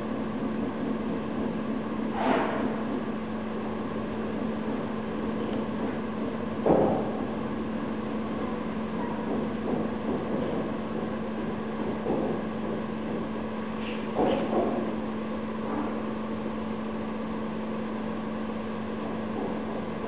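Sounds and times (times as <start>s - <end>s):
steady mechanical hum: 0.0s - 20.0s.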